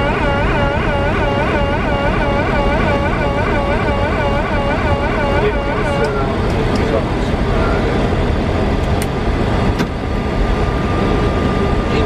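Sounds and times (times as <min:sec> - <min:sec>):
high warbling alert tone: 0:00.0 - 0:06.2
low rumble of aircraft cabin: 0:00.0 - 0:12.0.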